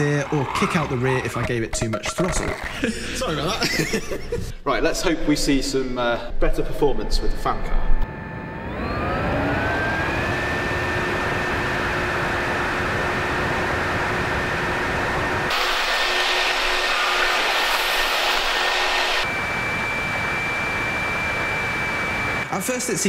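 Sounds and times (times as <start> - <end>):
fan whining with rushing air: 7.4 - 23.0.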